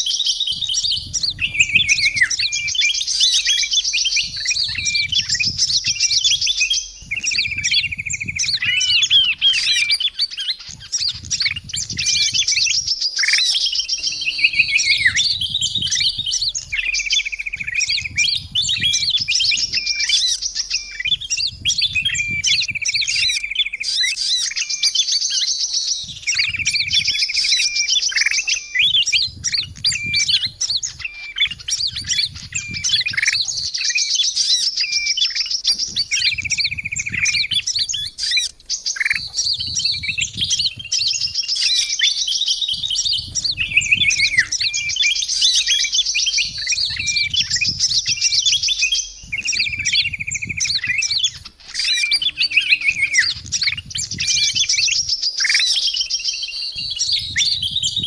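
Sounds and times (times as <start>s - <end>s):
bulbul lower trill: 0.0s - 23.8s
small birds chirping and trilling: 0.0s - 58.0s.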